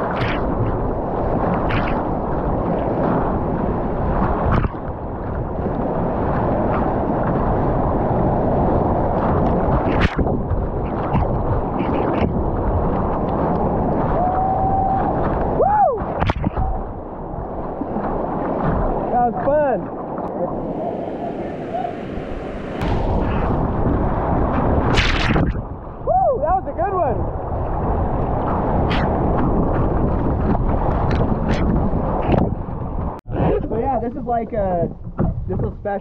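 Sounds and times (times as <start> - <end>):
water slaps: 0.0 - 0.8, 1.4 - 3.2, 4.2 - 5.0, 9.1 - 14.2, 15.1 - 16.9, 22.7 - 25.8, 28.2 - 32.6
whitewater rushing and splashing: 0.0 - 32.5.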